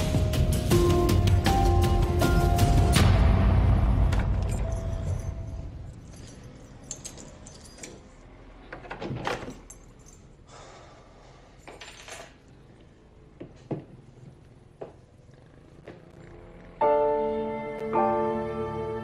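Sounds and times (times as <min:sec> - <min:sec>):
keys jangling: 0:04.4 - 0:08.5, 0:09.2 - 0:10.4.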